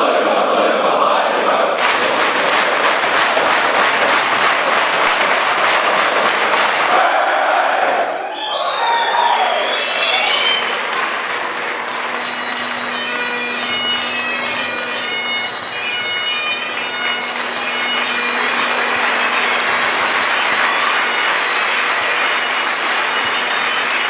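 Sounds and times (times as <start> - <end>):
bagpipe chanter melody: 9.8 - 24.0
bagpipe drone: 9.8 - 24.0.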